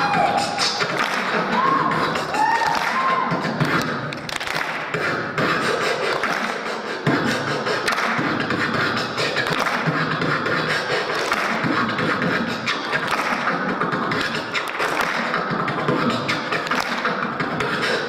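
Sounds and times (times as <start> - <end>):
beatboxing into microphone: 0.0 - 18.0.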